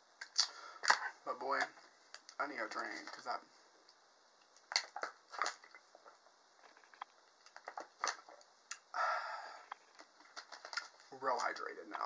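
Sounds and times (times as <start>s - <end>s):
person exhaling: 8.9s - 9.7s.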